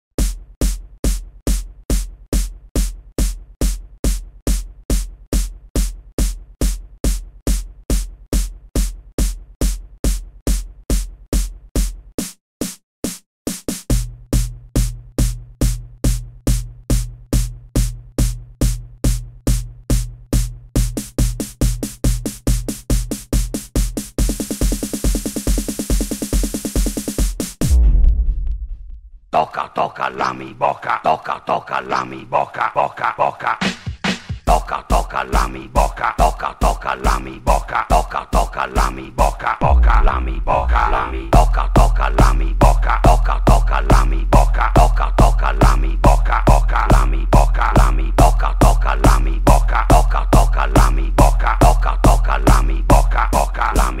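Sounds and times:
drum machine kick beat: 0.2 - 29.1, 33.6 - 54.0
steady bass note: 39.6 - 41.5.

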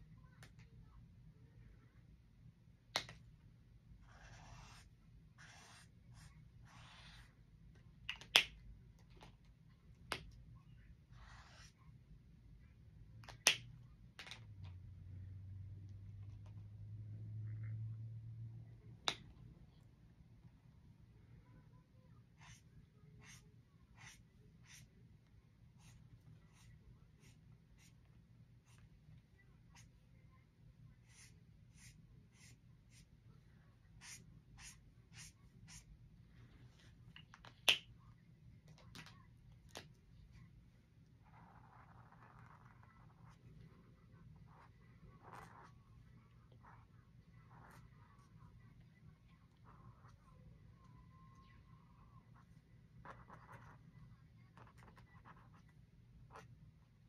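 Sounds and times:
marker scratching on paper: 4.0 - 7.4, 11.1 - 11.8, 22.3 - 25.0, 25.7 - 30.1, 31.0 - 33.1, 33.9 - 35.9, 41.2 - 45.8, 46.4 - 48.5, 52.2 - 53.8, 54.4 - 56.5.

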